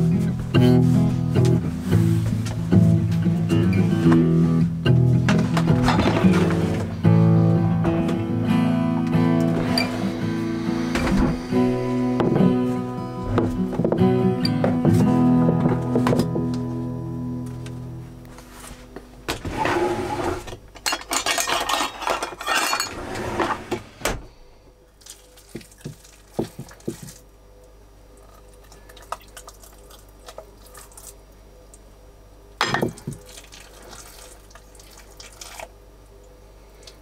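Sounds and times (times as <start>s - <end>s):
dishes clattering: 20.8s - 23.6s, 32.6s - 33.1s
running water: 32.9s - 35.8s.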